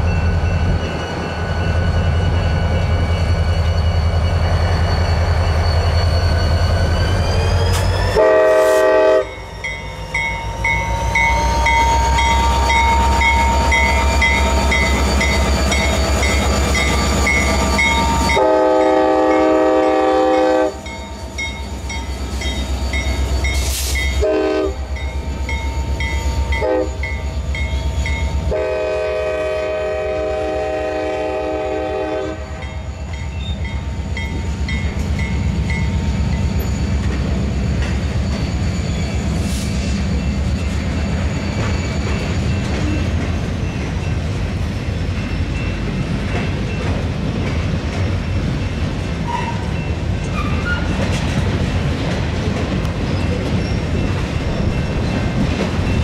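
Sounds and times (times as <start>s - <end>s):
train cars rolling by: 0.0s - 56.0s
train horn blowing: 8.1s - 9.4s, 18.1s - 20.9s, 24.0s - 24.9s, 26.5s - 27.2s, 28.4s - 32.8s.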